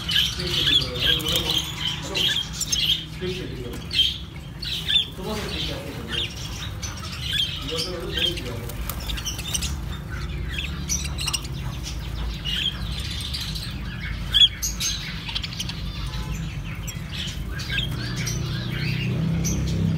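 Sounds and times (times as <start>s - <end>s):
birds chirping and twittering: 0.0s - 19.9s.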